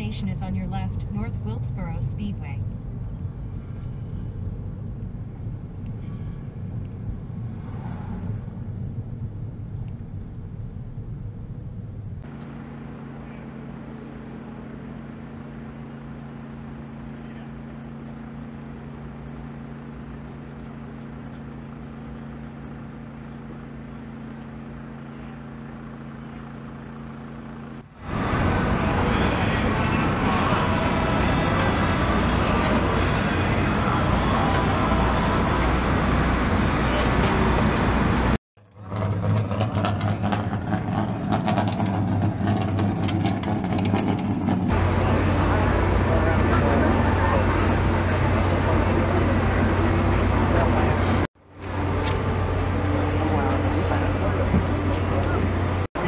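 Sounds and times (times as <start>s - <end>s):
car road noise from inside: 0.0s - 12.4s, 27.8s - 56.0s
steady low hum with tones: 0.0s - 39.4s, 43.8s - 56.0s.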